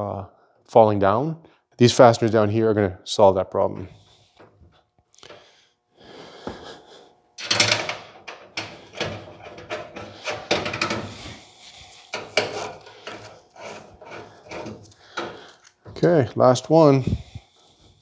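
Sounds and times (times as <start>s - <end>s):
metal mesh clicks and rattles: 7.4s - 11.1s.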